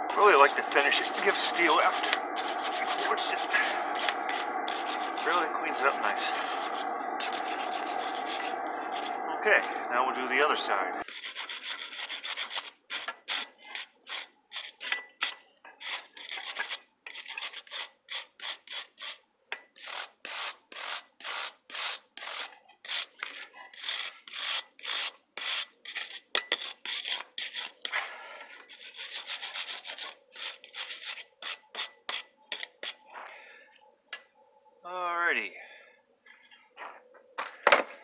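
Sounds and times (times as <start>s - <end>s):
wire brush scrubbing steel: 0.1s - 9.2s, 11.0s - 19.2s, 19.8s - 28.0s, 28.6s - 33.0s.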